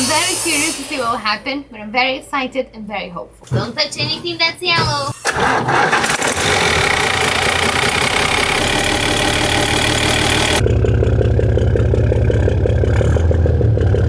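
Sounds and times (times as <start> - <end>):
marine diesel engine running: 5.4 - 14.0.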